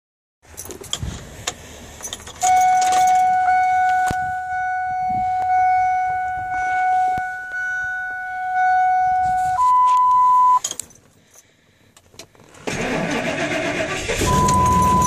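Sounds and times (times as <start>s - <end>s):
keys jangling and clicking: 0.5s - 1.1s, 2.0s - 3.4s, 10.6s - 11.5s
high warning tone: 2.4s - 10.7s, 14.1s - 15.0s.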